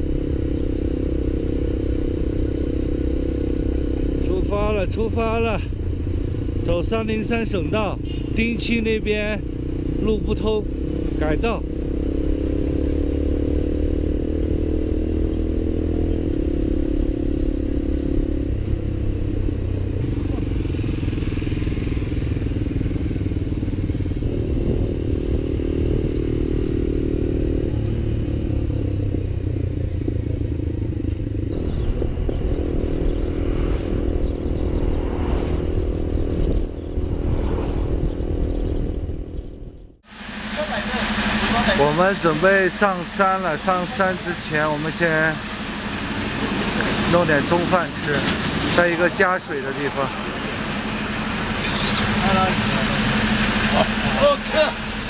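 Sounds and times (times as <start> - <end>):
motorcycle engine running: 0.0 - 55.0
road noise: 0.0 - 55.0
wind noise: 24.0 - 26.6, 31.4 - 40.0.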